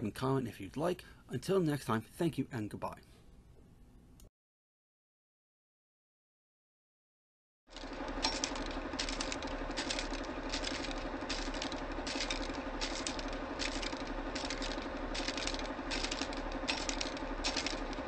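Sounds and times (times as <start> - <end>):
film projector rattling: 7.7 - 18.0
low hum: 7.7 - 18.0
clicks and crackles: 7.8 - 18.0.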